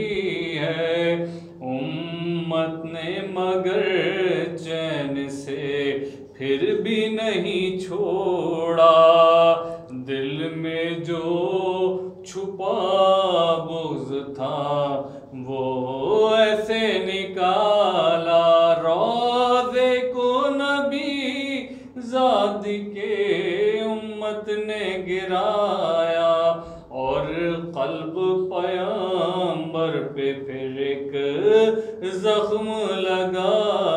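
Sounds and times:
man chanting a lament: 0.0s - 33.9s.

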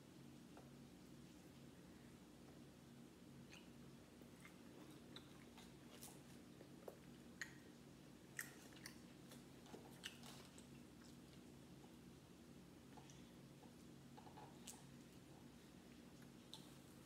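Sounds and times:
low steady hum: 0.0s - 17.0s
faint chewing: 3.5s - 12.1s, 12.8s - 17.0s.

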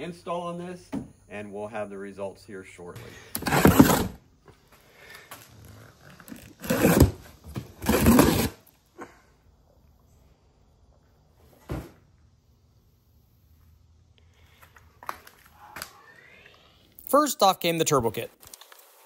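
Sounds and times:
cardboard and plastic rustling: 3.4s - 4.2s, 5.4s - 8.6s.

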